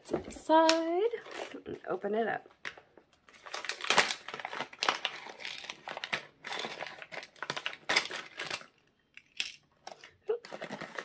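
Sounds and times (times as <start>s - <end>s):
plastic packaging crinkling: 2.6s - 11.0s.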